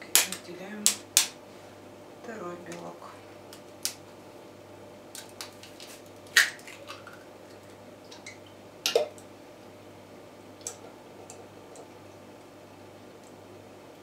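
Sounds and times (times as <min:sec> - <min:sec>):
taps cracking an egg shell: 0:00.1 - 0:01.4, 0:05.1 - 0:07.2.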